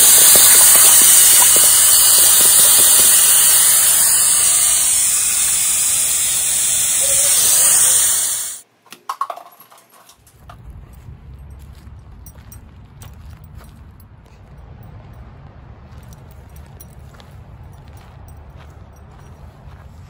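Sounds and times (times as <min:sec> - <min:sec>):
garden hose spraying water: 0:00.0 - 0:08.6.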